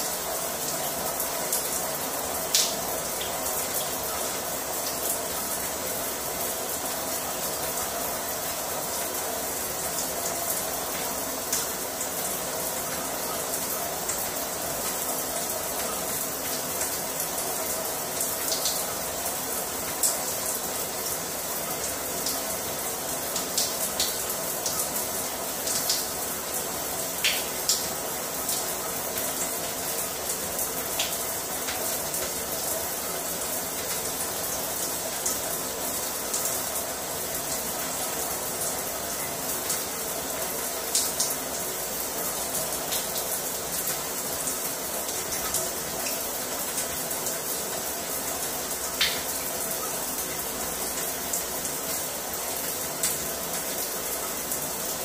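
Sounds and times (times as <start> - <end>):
shower water splashing: 0.0 - 55.0
water drips: 0.0 - 55.0.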